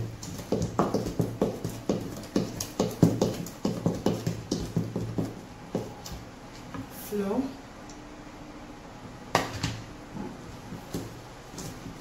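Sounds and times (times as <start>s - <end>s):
spatula beating batter in bowl: 0.0s - 6.1s.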